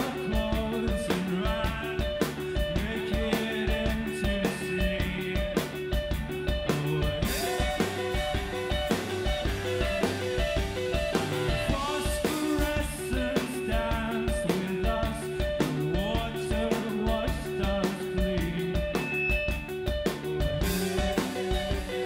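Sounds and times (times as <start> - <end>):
man singing: 0.0 - 6.0, 6.7 - 8.4, 11.5 - 19.2
bass guitar: 0.0 - 22.0
drum kit: 0.0 - 22.0
electric guitar picking notes: 0.0 - 22.0.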